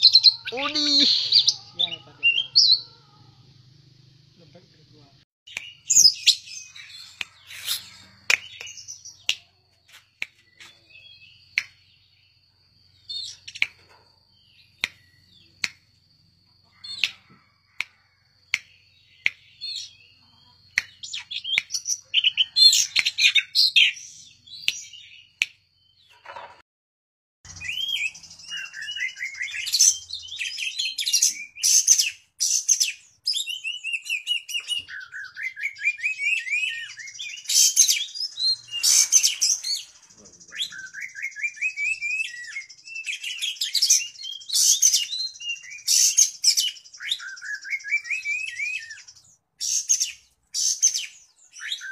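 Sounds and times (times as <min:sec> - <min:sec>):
songbird singing whistled phrases: 0:05.5 - 0:09.4, 0:18.6 - 0:25.4, 0:27.5 - 0:51.9.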